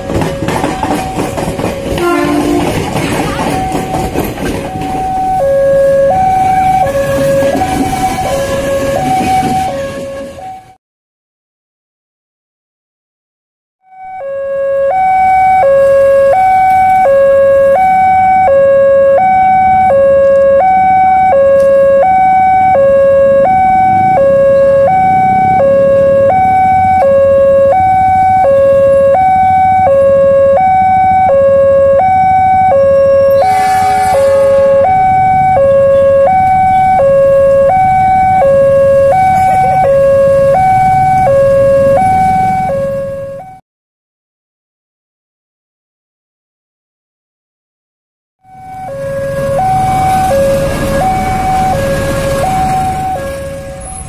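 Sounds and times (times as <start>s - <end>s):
diesel locomotive rumble: 0.0s - 10.8s, 19.6s - 43.5s, 48.5s - 54.0s
level crossing two-tone alarm: 0.0s - 10.8s, 13.8s - 43.6s, 48.4s - 54.0s
harsh alarm burst: 2.0s - 10.7s, 14.0s - 43.6s, 48.4s - 54.0s.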